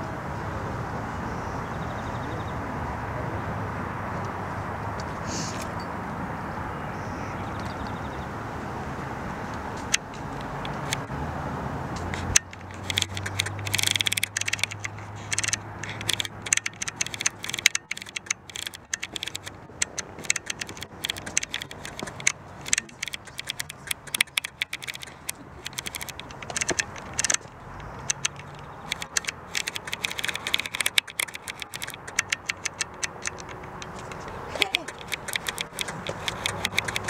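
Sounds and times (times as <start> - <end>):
rattling and clicking: 9.8 - 11.1, 12.0 - 37.0.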